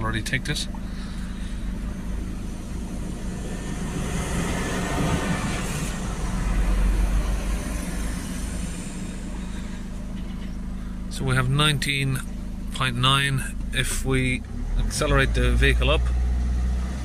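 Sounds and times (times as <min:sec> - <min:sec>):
diesel engine idling: 0:00.0 - 0:17.0
rushing noise: 0:01.3 - 0:09.9.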